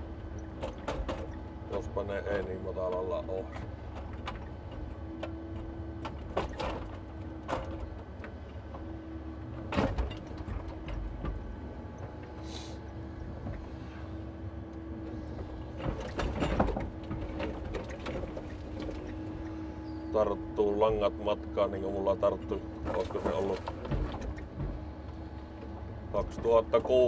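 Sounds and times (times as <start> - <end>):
knocks and clunks: 0.3 - 8.9, 9.6 - 12.4, 14.8 - 20.1, 22.3 - 27.0.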